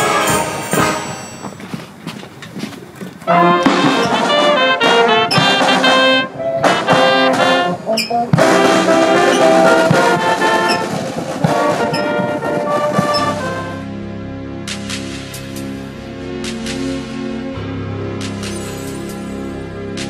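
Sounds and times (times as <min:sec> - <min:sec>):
brass band playing: 0:00.0 - 0:01.4, 0:03.2 - 0:14.2.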